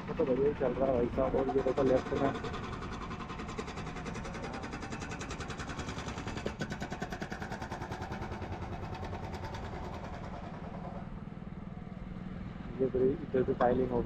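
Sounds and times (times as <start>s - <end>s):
motorcycle engine running: 0.0s - 12.2s.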